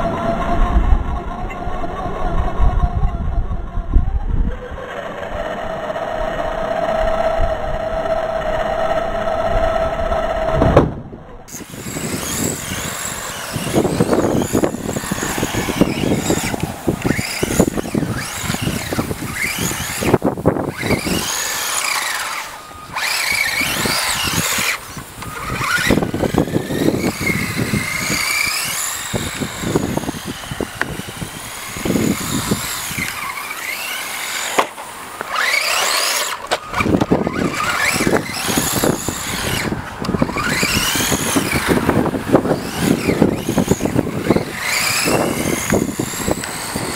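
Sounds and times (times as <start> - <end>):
remote control car motor whine: 0.0 - 46.9
tyre noise on concrete: 11.5 - 46.9.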